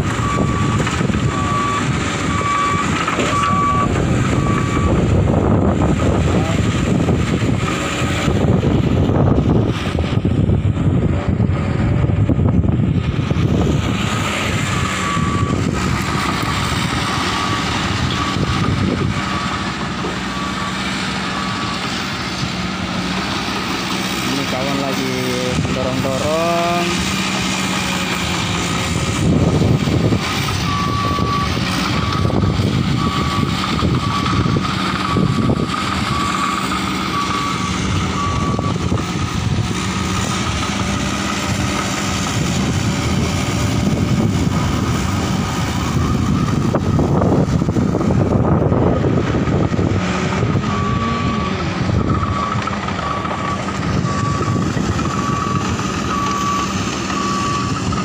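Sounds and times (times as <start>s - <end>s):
heavy diesel engine under load: 0.0s - 58.0s
reversing alarm beeps: 0.1s - 5.2s, 14.4s - 22.2s, 29.9s - 39.4s, 50.4s - 58.0s.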